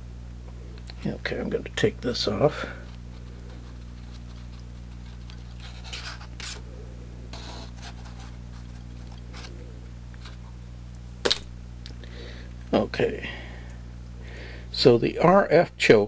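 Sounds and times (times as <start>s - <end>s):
electrical mains hum: 0.0s - 16.0s
alligator clip scratches: 3.5s - 6.6s.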